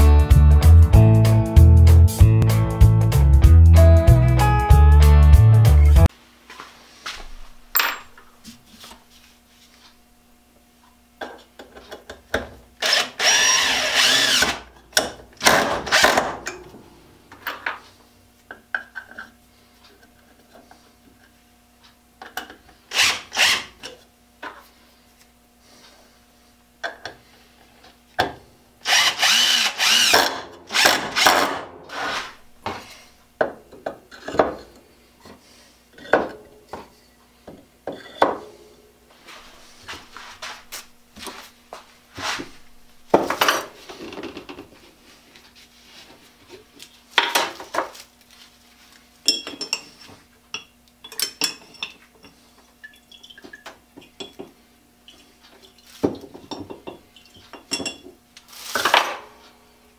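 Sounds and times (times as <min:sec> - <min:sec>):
cordless drill into wood: 0:12.8 - 0:14.6, 0:22.9 - 0:23.7, 0:28.8 - 0:31.6.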